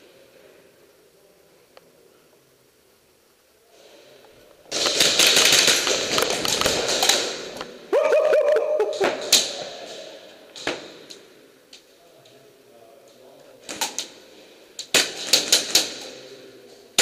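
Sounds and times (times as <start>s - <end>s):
pellets rattling into a wall: 4.7s - 7.6s
sharp crack: 4.7s - 7.8s, 14.8s - 16.2s.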